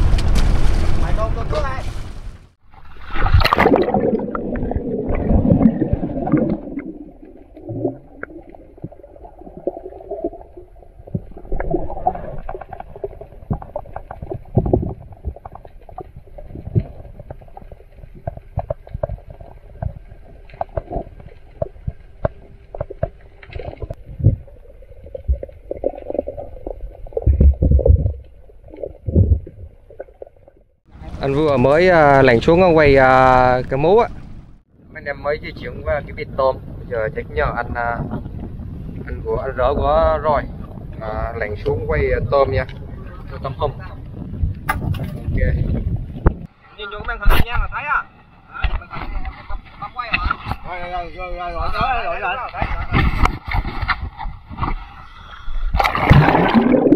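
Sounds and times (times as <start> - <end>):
bubbles gurgling underwater: 3.1 - 30.7, 55.7 - 56.9
rush of water: 55.7 - 56.9.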